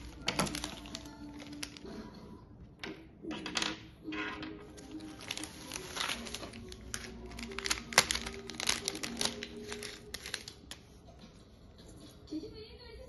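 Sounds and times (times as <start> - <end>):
bubble wrap crinkling: 0.0 - 2.0, 4.7 - 11.0.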